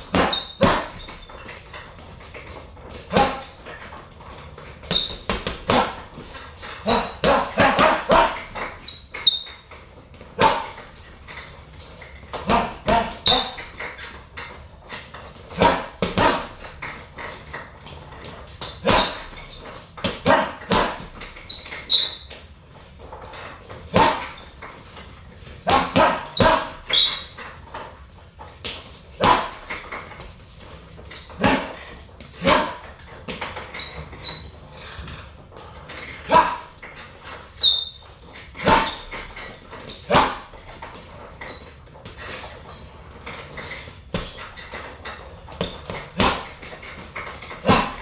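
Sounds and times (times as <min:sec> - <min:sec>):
punches on heavy bag: 0:00.0 - 0:01.0, 0:03.0 - 0:03.5, 0:05.2 - 0:06.1, 0:06.8 - 0:08.5, 0:10.4 - 0:10.8, 0:12.4 - 0:13.6, 0:15.5 - 0:16.6, 0:20.0 - 0:21.2, 0:23.9 - 0:24.4, 0:25.6 - 0:26.9, 0:29.2 - 0:29.6, 0:31.4 - 0:31.8, 0:45.6 - 0:46.5, 0:47.6 - 0:48.0
short high squeaks: 0:00.1 - 0:01.6, 0:04.8 - 0:09.8, 0:10.4 - 0:14.2, 0:18.7 - 0:19.8, 0:20.4 - 0:22.4, 0:23.9 - 0:24.7, 0:25.7 - 0:27.7, 0:33.6 - 0:34.8, 0:35.9 - 0:40.5.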